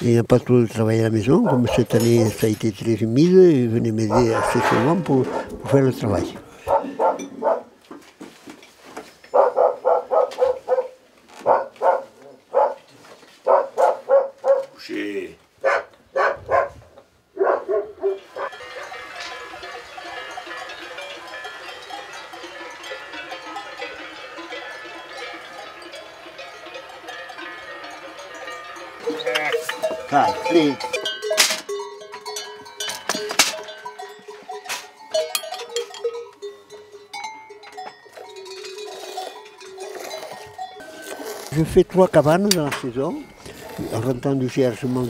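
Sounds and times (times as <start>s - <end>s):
sheep bells jangling: 0.7s - 5.0s, 18.2s - 45.0s
clanks and knocks: 18.4s - 36.3s.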